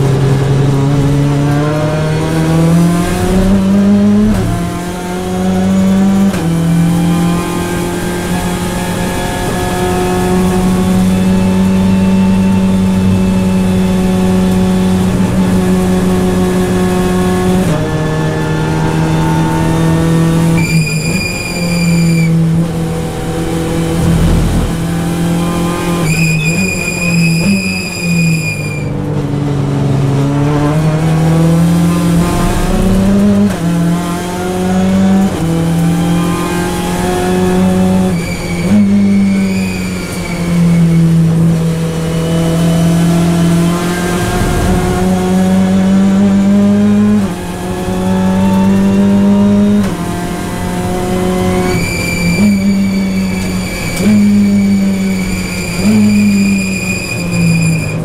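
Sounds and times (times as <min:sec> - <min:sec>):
race car engine revving: 0:00.0 - 0:58.0
high steady whine: 0:22.6 - 0:26.1, 0:42.2 - 0:46.6.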